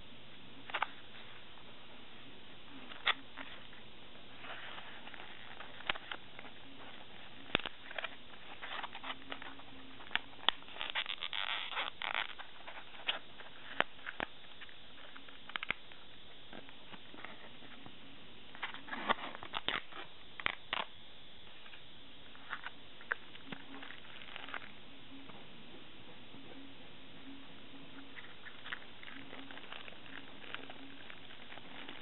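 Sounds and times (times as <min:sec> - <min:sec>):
plastic film crinkling: 0:02.8 - 0:17.6, 0:18.6 - 0:21.0, 0:21.6 - 0:24.8, 0:28.1 - 0:32.0.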